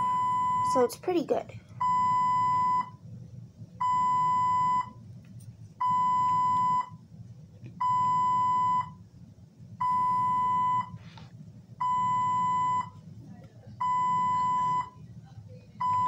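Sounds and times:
medical equipment alarm beeping: 0.0s - 0.8s, 1.8s - 3.0s, 3.8s - 5.0s, 5.8s - 7.0s, 7.8s - 9.0s, 9.8s - 11.0s, 11.8s - 13.0s, 13.8s - 15.0s, 15.8s - 16.0s.

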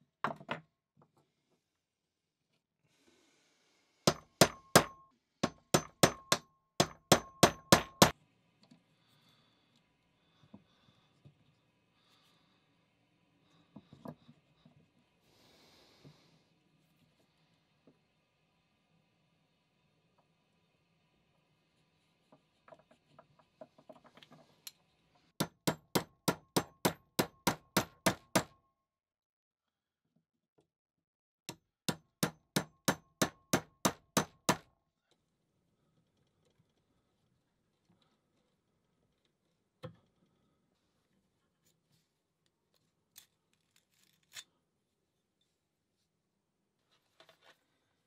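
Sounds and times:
hammer striking metal: 4.1s - 8.1s.

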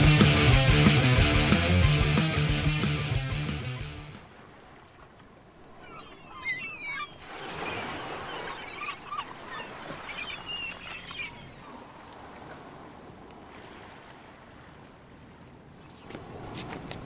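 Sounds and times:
seagulls calling: 5.6s - 12.0s.

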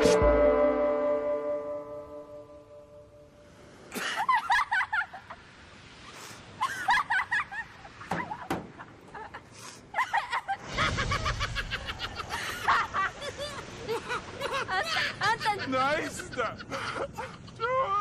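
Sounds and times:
woman laughing: 9.1s - 18.0s.

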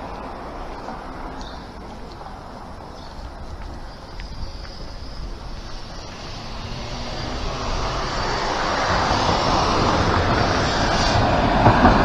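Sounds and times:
vehicle passing: 4.9s - 12.0s.

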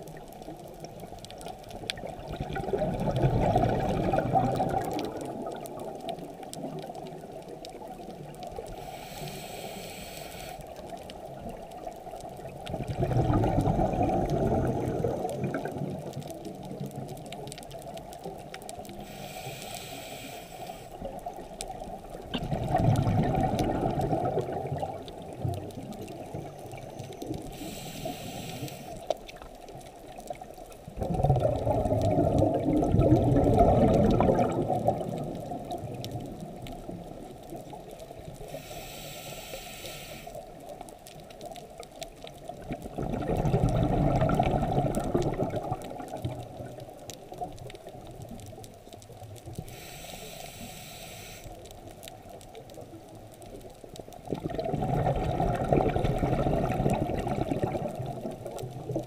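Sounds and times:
exhaled bubbles rushing: 2.0s - 8.0s, 12.4s - 17.2s, 22.1s - 26.8s, 30.9s - 37.4s, 42.6s - 47.6s, 54.3s - 59.0s
regulator hiss on inhale: 8.6s - 11.0s, 13.9s - 15.8s, 18.8s - 21.3s, 26.1s - 29.3s, 38.3s - 40.8s, 49.5s - 52.0s.

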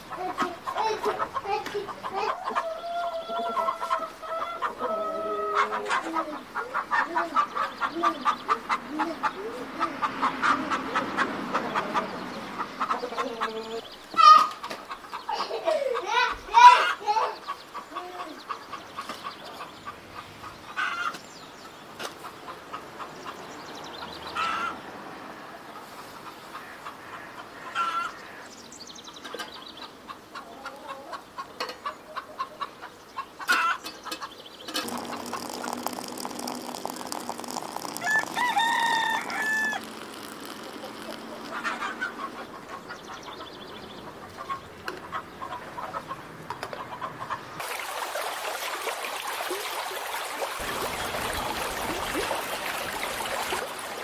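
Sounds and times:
chickens clucking: 0.0s - 21.2s, 22.0s - 24.8s, 25.7s - 28.2s, 29.2s - 47.8s
hot water pouring into metal teapot: 34.7s - 42.6s, 47.6s - 54.0s
rooster crowing: 38.0s - 39.9s.

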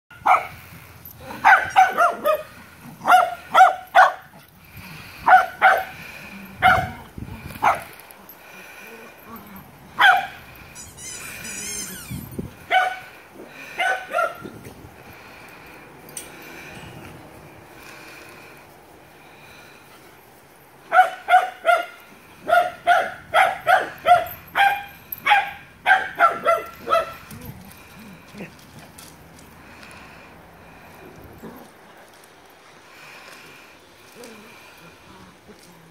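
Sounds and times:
dog barking: 0.2s - 0.5s, 1.4s - 4.3s, 5.2s - 5.9s, 6.6s - 7.0s, 7.6s - 7.9s, 10.0s - 10.4s, 12.7s - 13.0s, 13.8s - 14.4s, 20.9s - 27.2s.

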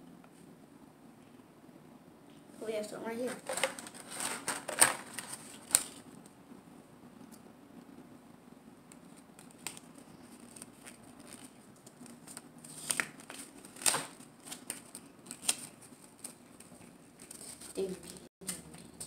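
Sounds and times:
paper leaflet crinkling: 3.2s - 6.2s, 8.9s - 19.0s.

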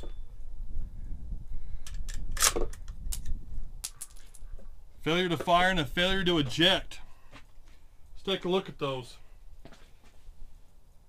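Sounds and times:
wind rumble on microphone: 0.0s - 5.1s.

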